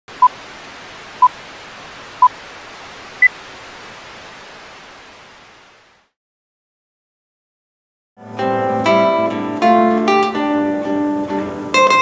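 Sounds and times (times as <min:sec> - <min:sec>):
steady hiss: 0:00.1 - 0:06.1.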